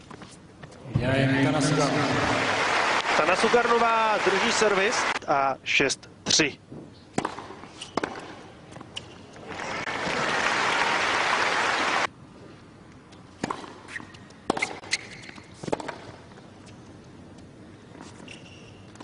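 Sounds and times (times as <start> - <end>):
crowd applauding: 1.5 - 5.2, 9.5 - 12.1.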